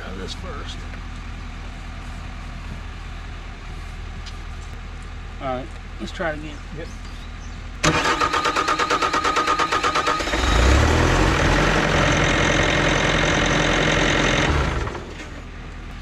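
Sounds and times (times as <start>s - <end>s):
diesel engine cranking and running: 7.0s - 16.0s.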